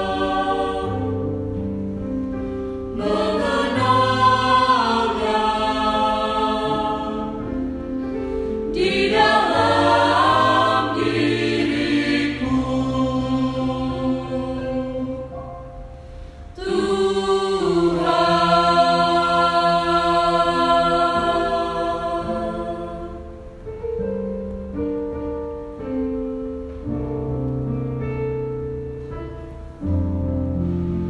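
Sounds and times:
choir singing a hymn: 0.0 - 23.6.

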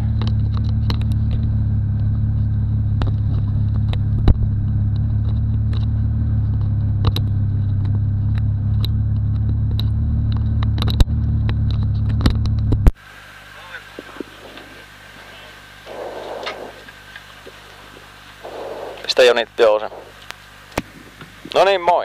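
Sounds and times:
car engine idling: 0.0 - 21.8
sharp clicks and knocks: 0.1 - 1.5, 6.5 - 13.0.

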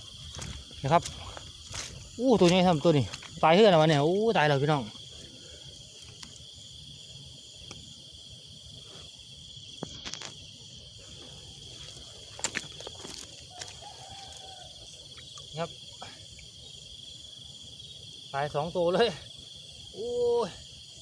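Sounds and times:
night insects trilling: 0.0 - 21.0
footsteps and handling knocks: 0.2 - 4.1, 11.2 - 14.0.

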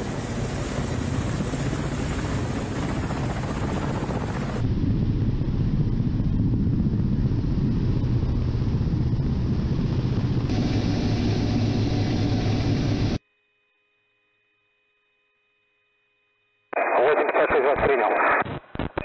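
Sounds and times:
wind noise: 0.0 - 12.9
helicopter rotor and engine rumble: 0.0 - 13.2.

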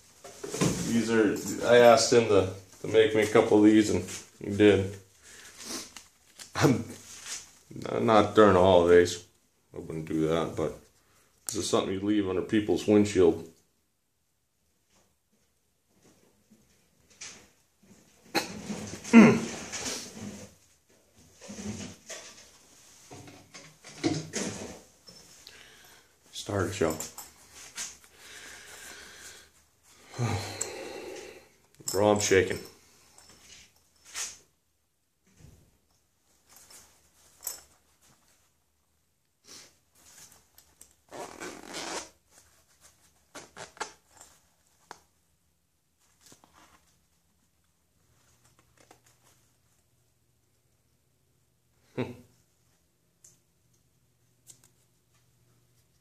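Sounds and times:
packaging and fabric pouch rustling: 40.0 - 45.1.

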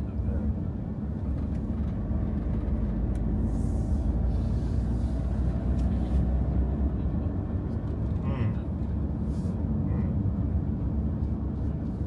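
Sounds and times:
car tyres and engine rumble: 0.0 - 12.0.

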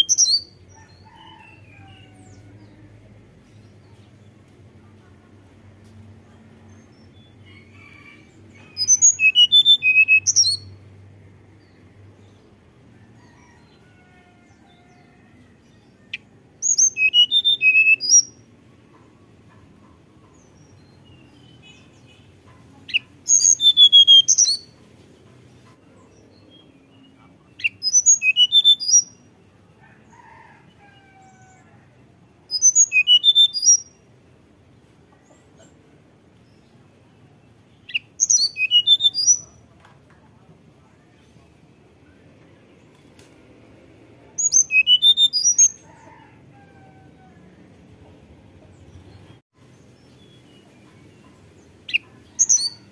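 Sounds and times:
bird whistling song phrases: 0.0 - 0.5, 8.7 - 10.7, 16.7 - 18.3, 22.9 - 24.7, 27.6 - 29.1, 32.5 - 33.8, 37.9 - 39.5, 44.4 - 45.8, 51.9 - 52.9.

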